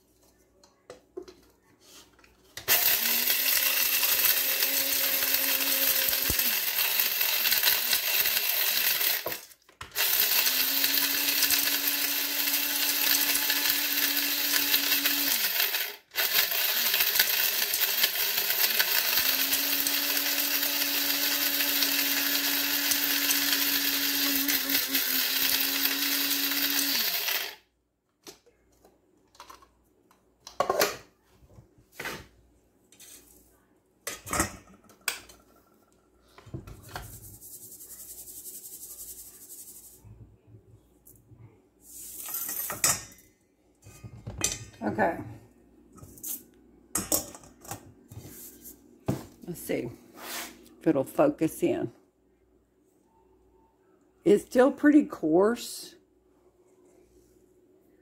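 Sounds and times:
coffee grinder motor whine: 2.7 - 27.6.

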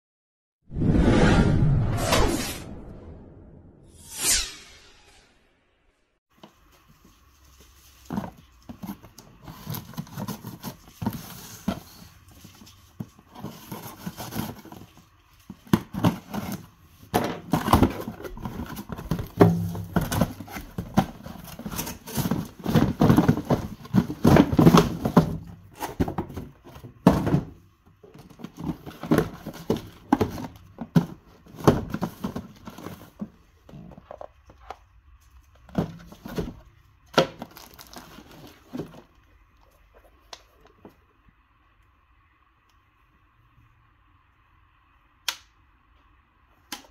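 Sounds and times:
cardboard and paper rustling: 6.4 - 41.0
knocks and thumps of box: 13.0 - 34.3, 35.6 - 39.1.

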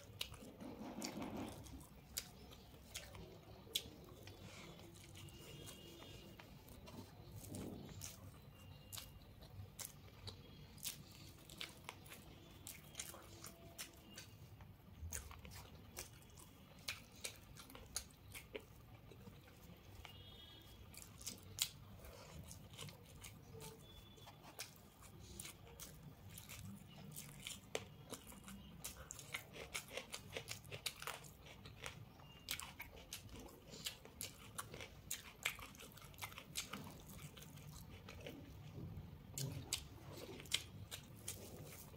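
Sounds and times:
chewing and crunching: 0.0 - 41.9.

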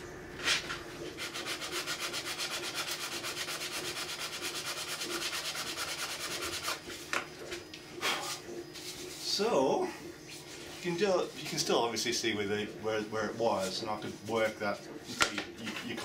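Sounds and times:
hand sanding plastic: 0.4 - 9.6, 10.4 - 16.0.

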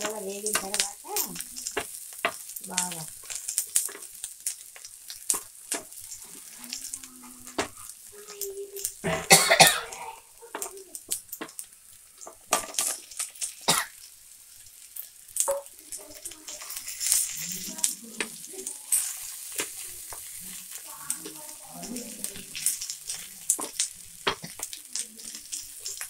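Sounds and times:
food sizzling in oil: 0.0 - 26.0
spatula scraping a pan: 14.8 - 26.0.

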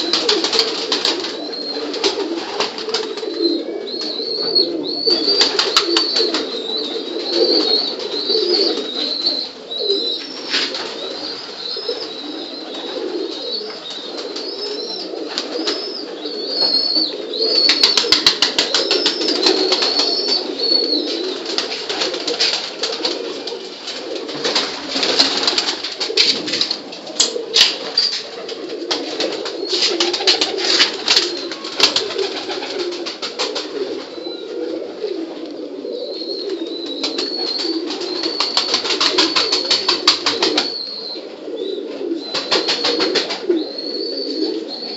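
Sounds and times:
pigeons cooing: 0.0 - 44.9
thin high wavering calls: 3.6 - 21.6, 36.0 - 44.9.

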